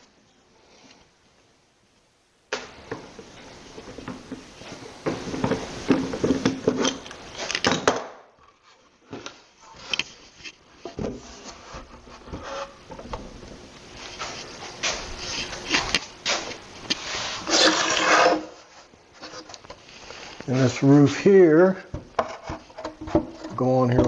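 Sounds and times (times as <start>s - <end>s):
plywood knocking and scraping: 2.9s - 8.0s, 10.8s - 13.4s, 21.8s - 24.0s.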